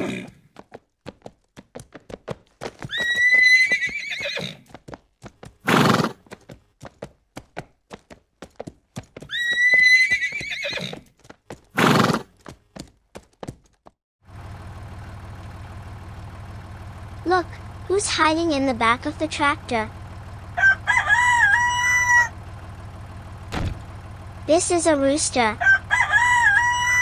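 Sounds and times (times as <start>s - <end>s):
horse whinnying: 0.0s - 0.4s, 2.9s - 4.6s, 5.7s - 6.2s, 9.3s - 11.0s, 11.8s - 12.3s
clip-clop of hooves: 0.0s - 14.0s
horse breathy blast: 5.6s - 6.2s, 11.7s - 12.3s
tractor engine idling: 14.2s - 27.0s.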